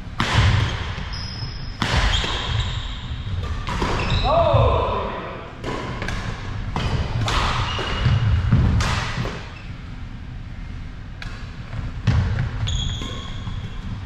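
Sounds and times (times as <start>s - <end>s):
racket striking shuttlecock: 0.2s - 1.0s, 3.4s - 4.1s, 5.6s - 9.5s
shoe squeaks: 1.1s - 3.3s, 4.0s - 4.3s, 9.5s - 9.8s, 12.6s - 14.0s.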